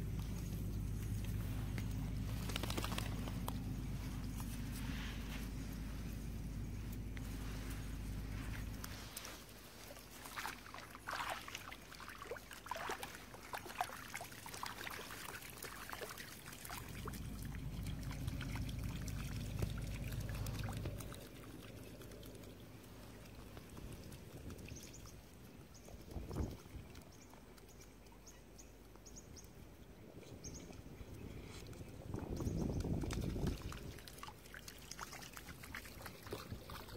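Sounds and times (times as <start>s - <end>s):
low rumble: 0.0s - 9.2s, 16.8s - 24.6s
footsteps splashing in mud: 7.2s - 21.3s.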